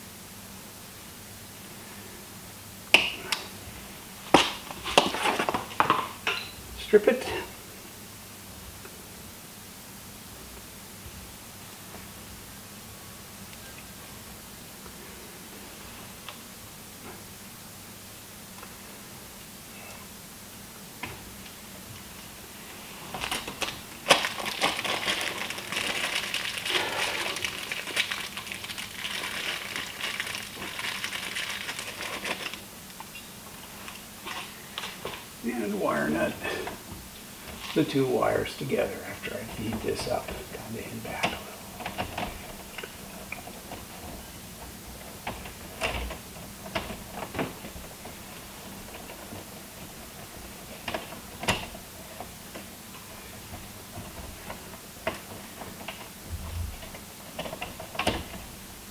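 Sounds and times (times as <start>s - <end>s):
wires clicking and rustling: 22.9s - 36.0s, 36.6s - 58.6s.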